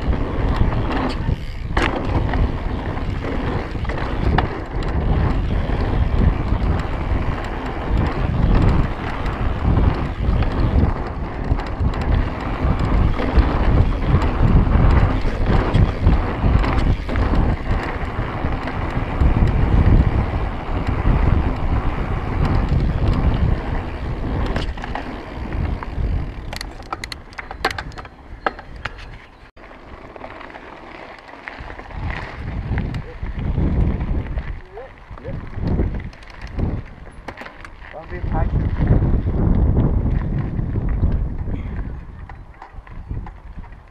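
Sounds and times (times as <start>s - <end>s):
wind rushing on microphone: 0.0s - 29.3s, 31.6s - 43.9s
bike rattling: 0.0s - 43.9s
sharp clicks and rattles: 0.1s - 29.1s, 35.1s - 38.7s.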